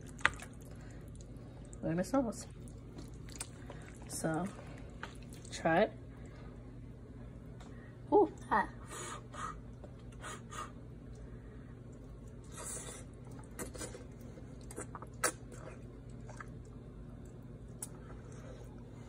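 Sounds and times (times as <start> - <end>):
person chewing food: 0.0 - 1.8, 2.5 - 5.5, 11.0 - 19.0.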